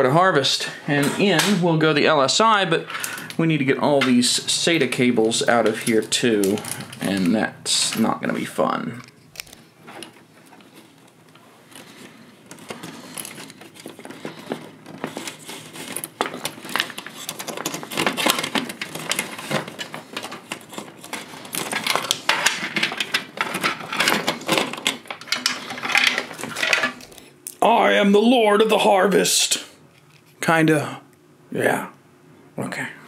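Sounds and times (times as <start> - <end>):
plastic clicks and cable rattles: 12.5 - 27.2.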